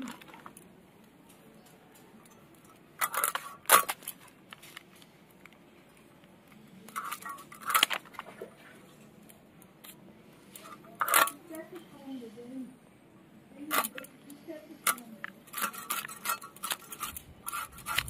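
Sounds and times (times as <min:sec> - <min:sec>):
blade cutting and scraping fish: 0:14.8 - 0:18.0.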